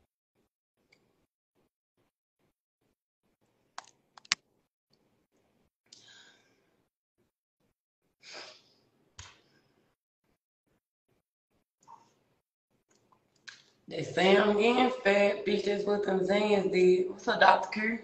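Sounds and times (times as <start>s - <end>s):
sharp clicks and taps: 3.8s - 4.4s.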